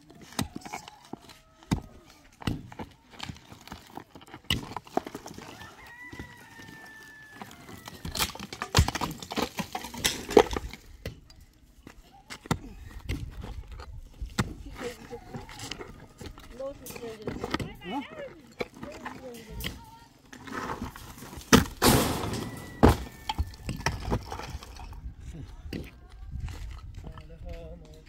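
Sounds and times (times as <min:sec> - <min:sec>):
rooster crowing: 0:05.4 - 0:08.2, 0:21.9 - 0:23.8
pickaxe striking mud: 0:21.5 - 0:22.2.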